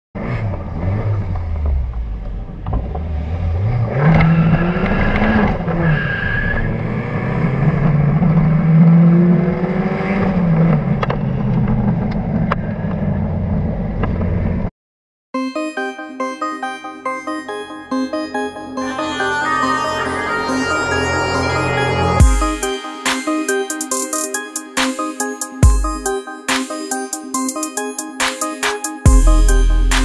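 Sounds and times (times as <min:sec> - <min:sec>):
car engine accelerating: 0:00.2 - 0:14.7.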